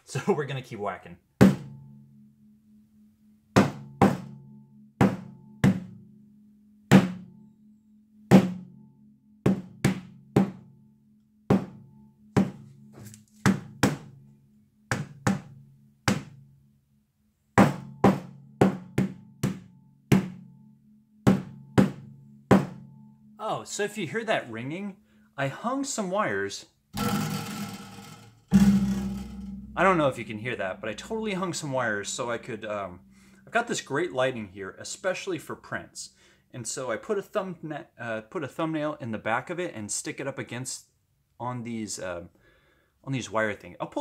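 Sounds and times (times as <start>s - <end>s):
hammer striking canvas panel: 1.4s - 1.8s, 3.6s - 4.4s, 5.0s - 6.0s, 8.3s - 8.6s, 9.5s - 10.6s, 11.5s - 11.8s, 12.4s - 12.7s, 13.5s - 14.1s, 14.9s - 15.5s, 16.1s - 16.4s, 17.6s - 20.4s, 21.3s - 22.8s
wires ringing like a gong: 27.0s - 33.7s.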